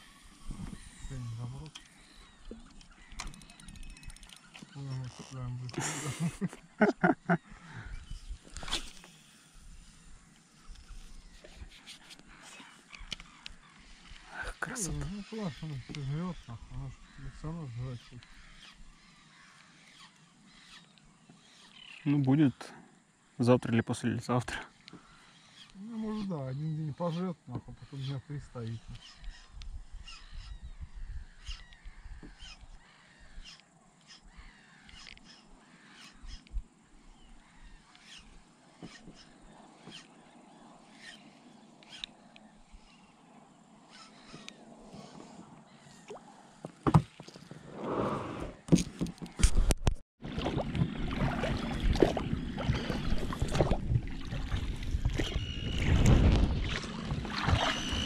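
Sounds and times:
birds calling: 0.0 - 49.7, 50.7 - 58.0
spinning reel winding rumble: 3.3 - 4.5
water splashing off oars: 50.2 - 58.0.

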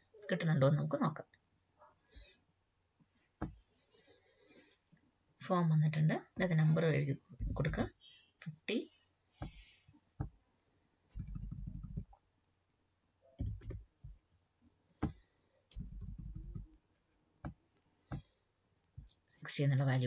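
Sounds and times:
keyboard key presses: 13.4 - 13.8.

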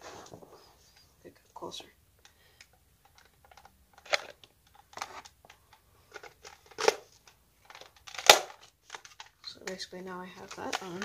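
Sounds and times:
plastic clicks and scrapes: 2.6 - 9.8, 10.4 - 11.0.

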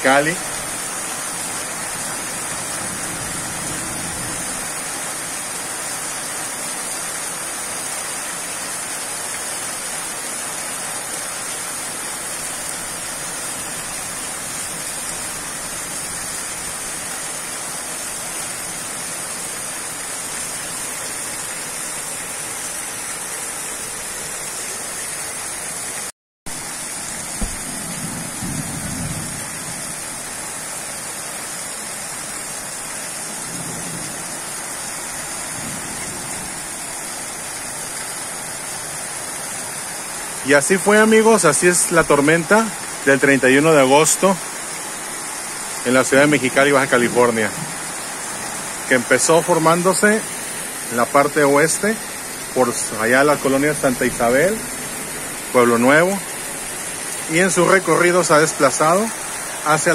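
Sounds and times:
heavy rain falling: 0.0 - 59.9
low thunder rumble: 27.2 - 30.2.

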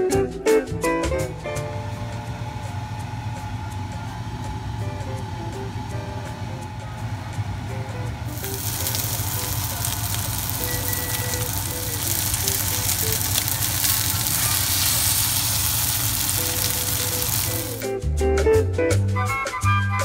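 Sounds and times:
meat sizzling and spattering: 8.3 - 17.9.

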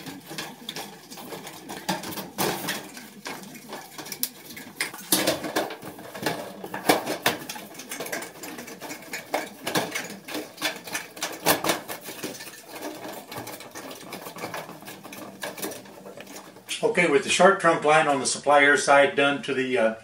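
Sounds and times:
sheet metal clicking and rattling: 0.0 - 16.8.

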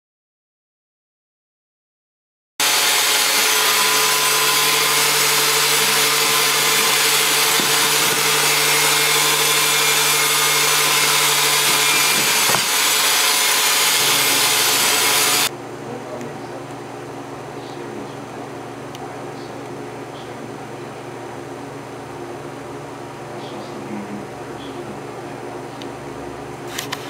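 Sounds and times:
power tool motor running: 2.6 - 15.5.

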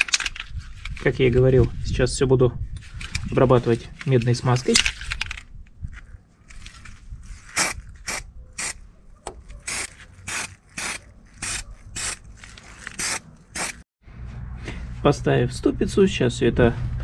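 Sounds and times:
hand tool rasping strokes: 9.6 - 13.8.

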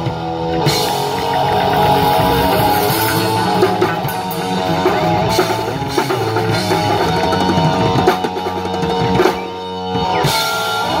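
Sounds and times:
live rock band playing: 0.0 - 11.0
cymbal crash: 0.8 - 7.1.

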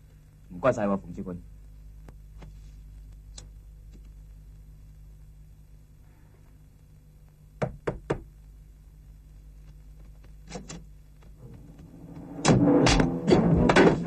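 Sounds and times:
knocks on a door: 7.6 - 8.3.

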